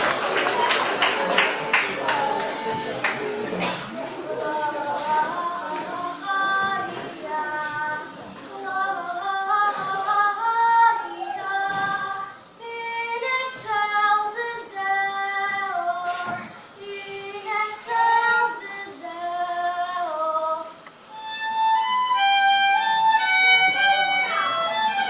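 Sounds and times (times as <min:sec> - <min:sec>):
fiddle playing a tune: 0:01.1 - 0:03.6, 0:21.0 - 0:25.0
girl singing: 0:04.3 - 0:20.8.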